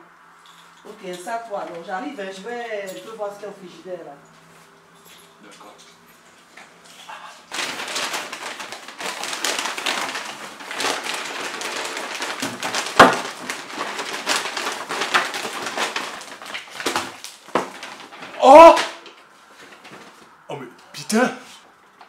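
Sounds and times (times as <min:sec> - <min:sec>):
plastic bag rustling and crinkling: 0:07.0 - 0:20.4.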